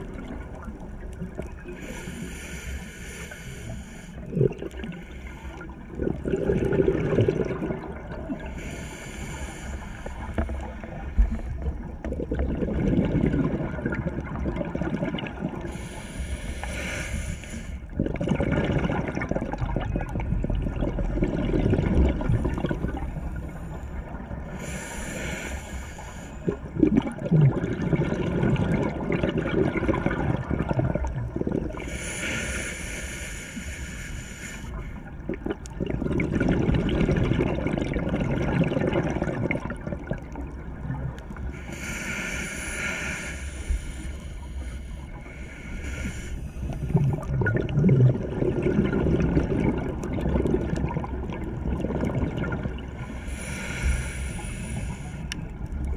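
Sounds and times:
regulator hissing inhale: 1.8s - 5.8s, 8.4s - 11.7s, 15.6s - 18.0s, 23.2s - 26.7s, 31.8s - 35.2s, 41.4s - 47.1s, 53.0s - 55.7s
gurgling exhaust bubbles: 5.8s - 8.6s, 10.4s - 15.7s, 17.9s - 23.4s, 26.4s - 31.8s, 35.2s - 41.4s, 46.6s - 53.1s.

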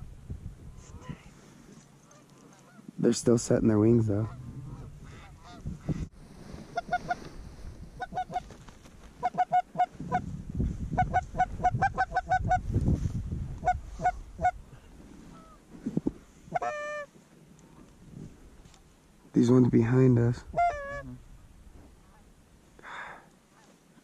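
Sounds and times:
low rumbles: 2.9s - 8.0s, 10.0s - 16.6s, 17.6s - 22.8s
goose honking: 6.7s - 7.3s, 8.0s - 8.5s, 9.2s - 10.2s, 11.0s - 12.6s, 16.5s - 17.1s, 20.5s - 21.2s.

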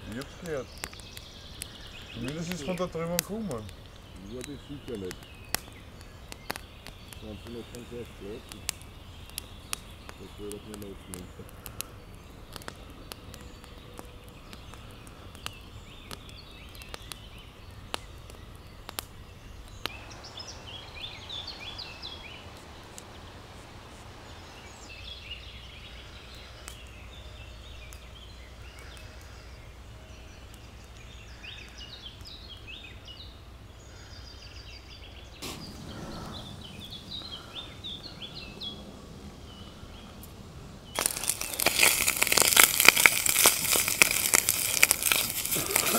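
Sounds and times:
songbirds chirping: 0.0s - 45.9s
loud crinkling: 40.9s - 45.9s.

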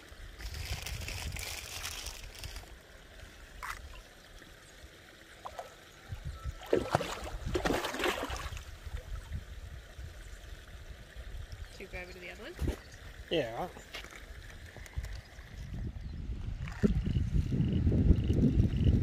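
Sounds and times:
low wind rumble: 5.9s - 19.0s
fish splashing in water: 6.6s - 9.1s.

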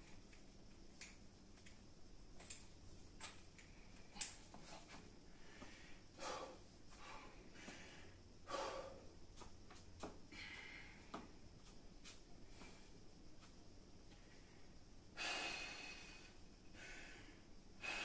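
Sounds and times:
forceful breaths through nose: 5.3s - 9.1s, 14.2s - 18.0s.

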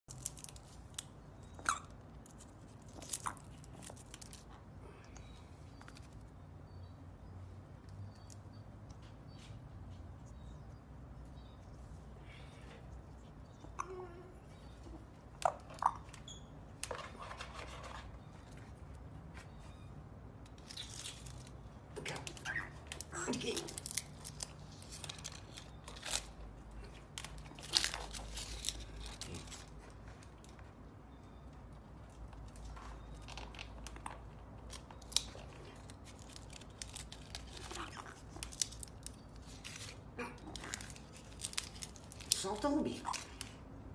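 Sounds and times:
parrot tearing dry leaf: 0.1s - 1.1s, 20.6s - 29.8s, 34.7s - 43.6s.

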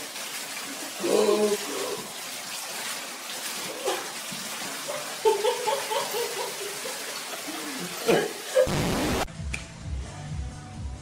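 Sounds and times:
water splashing into a bathtub: 0.0s - 8.6s.

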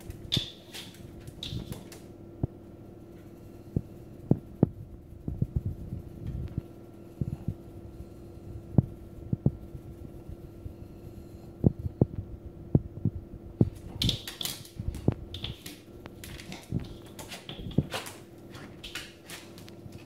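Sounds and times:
dog claws scratching a door: 0.0s - 2.0s, 13.7s - 20.0s
steady low hum: 0.0s - 20.0s.

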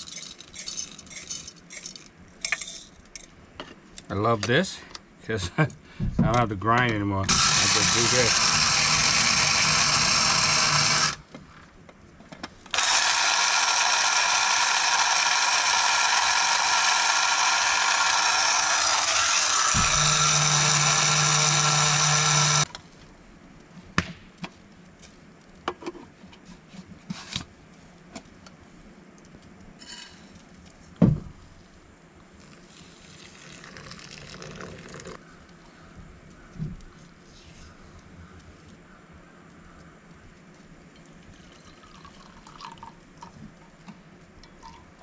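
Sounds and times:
electric coffee grinder running: 7.3s - 11.2s, 12.8s - 22.7s.

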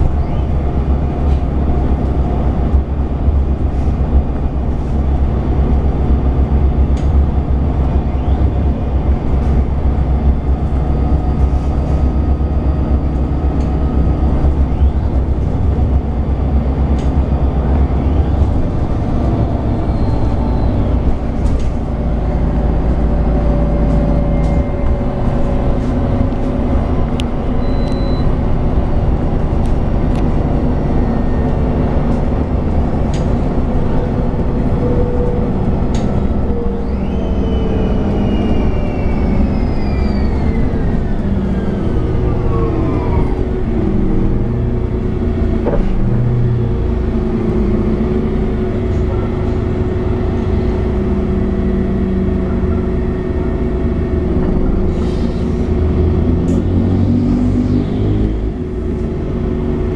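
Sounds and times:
bus diesel engine running: 0.0s - 59.9s.

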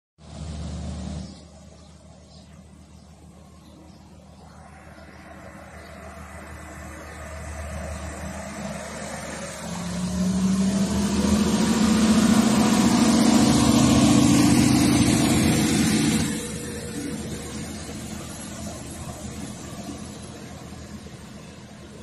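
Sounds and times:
diesel train engine droning: 0.2s - 22.0s
train wheels rumbling on rail: 6.0s - 22.0s.

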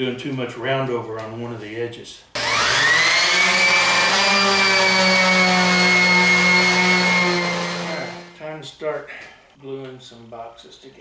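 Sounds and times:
electric orbital sander whining: 2.4s - 8.4s.

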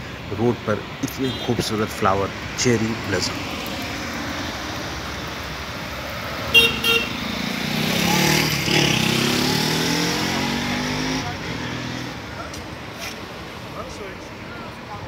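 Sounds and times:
vehicle horn toots: 6.5s - 7.2s
vehicle driving past: 7.0s - 12.4s.

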